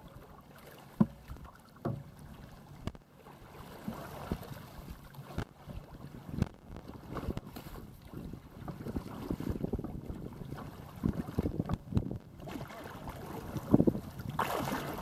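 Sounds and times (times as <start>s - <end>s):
water slapping against kayak: 0.0s - 15.0s
wind: 0.0s - 15.0s
water wash: 8.8s - 15.0s.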